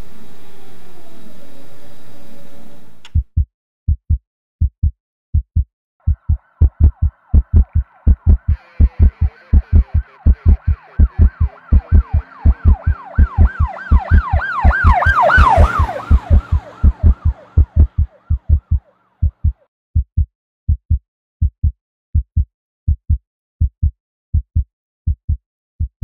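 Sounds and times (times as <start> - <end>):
heartbeat thumps: 3.2 - 26.0
emergency vehicle siren: 6.2 - 18.9.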